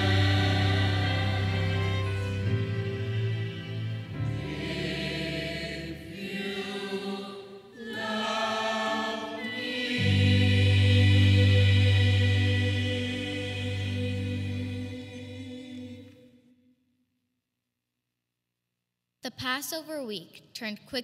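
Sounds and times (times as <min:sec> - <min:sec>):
steady bass: 0:00.0 - 0:02.9, 0:10.1 - 0:15.3
church choir singing held chords: 0:00.0 - 0:16.6.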